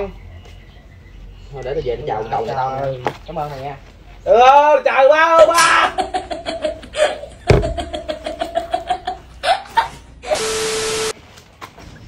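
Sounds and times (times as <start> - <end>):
sharp thump: 7.5 - 8.1
tv static hiss: 10.2 - 11.1.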